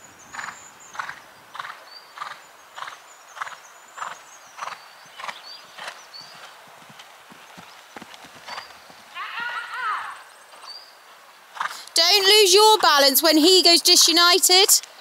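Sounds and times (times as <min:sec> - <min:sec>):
horse cantering on sand: 0:00.3 - 0:09.2, 0:11.5 - 0:14.3.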